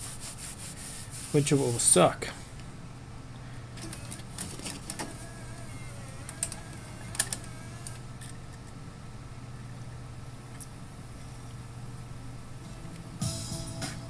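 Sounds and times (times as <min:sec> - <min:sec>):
steady low hum: 0:00.0 - 0:14.0
cd changer mechanism clicking: 0:03.8 - 0:08.0
faint wavering whir: 0:05.1 - 0:08.4.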